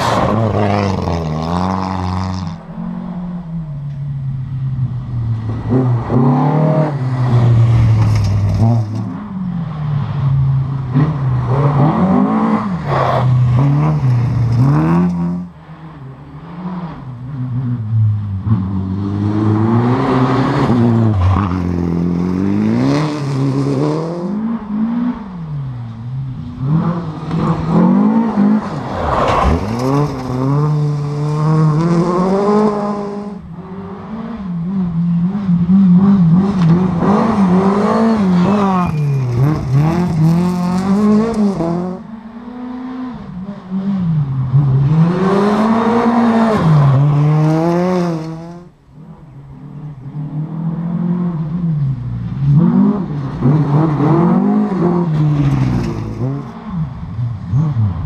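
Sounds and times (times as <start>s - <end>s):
rally car engines revving: 0.0s - 58.0s
car passing by: 27.3s - 32.8s.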